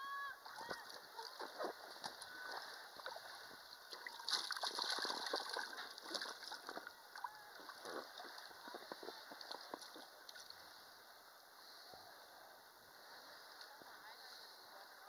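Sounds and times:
water splashing: 0.4 - 10.8.

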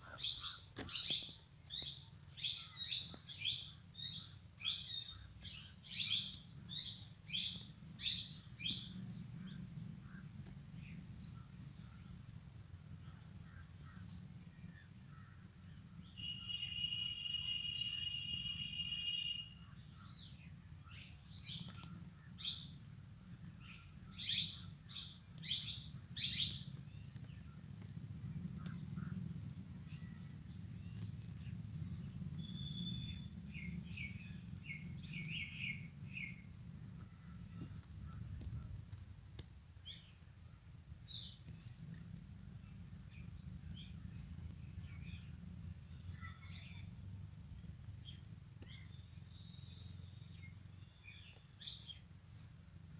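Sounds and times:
soft chirps and ticks: 0.1 - 2.2, 2.8 - 16.1, 19.8 - 52.9
low hum: 19.4 - 51.0.

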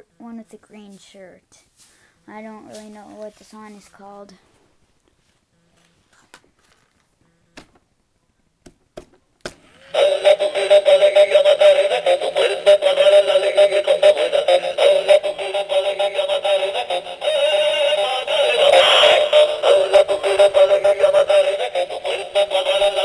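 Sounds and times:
toy playing synthesized song: 9.8 - 23.0.

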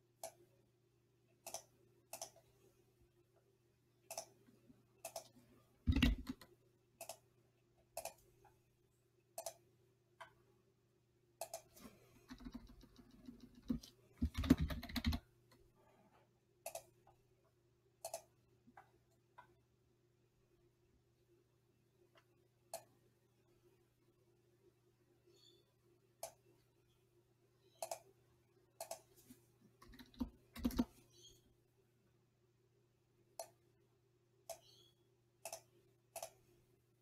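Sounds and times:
faint steady hum: 0.0 - 37.0
computer mouse clicks: 0.2 - 0.4, 1.4 - 2.5, 4.0 - 4.4, 5.0 - 7.3, 8.0 - 8.2, 9.4 - 9.6, 11.4 - 15.2, 16.6 - 17.1, 18.0 - 19.5, 22.2 - 22.9, 26.2 - 26.4, 27.7 - 28.1, 28.8 - 29.1, 29.8 - 30.9, 33.4 - 33.6, 34.5 - 34.8, 35.4 - 36.4
keyboard typing: 5.0 - 7.2, 11.4 - 15.3, 29.8 - 31.0.

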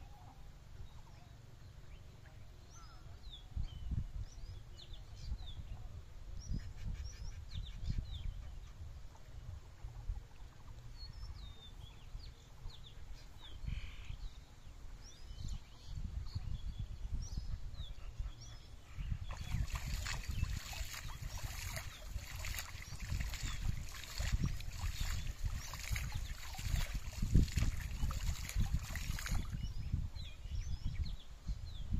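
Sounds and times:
small birds chirping: 11.0 - 31.9
water splashing and sloshing: 19.3 - 29.7.

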